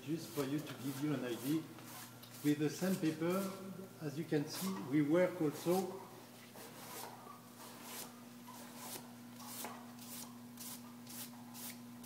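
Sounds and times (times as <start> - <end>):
steady low hum: 0.0 - 12.0
sandpaper scratching denim: 6.6 - 11.8.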